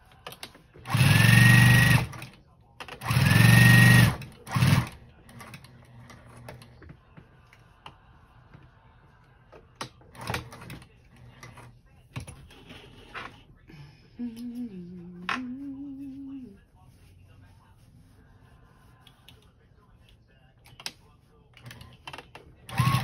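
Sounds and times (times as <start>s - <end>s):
sewing machine stitching: 0.3s - 6.7s, 21.6s - 23.0s
person humming: 13.7s - 16.6s.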